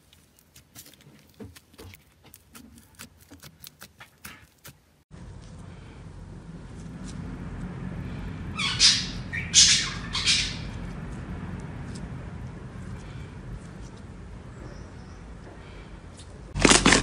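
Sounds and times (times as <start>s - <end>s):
slime squelching: 0.0s - 5.0s
low steady rumble: 5.1s - 17.0s.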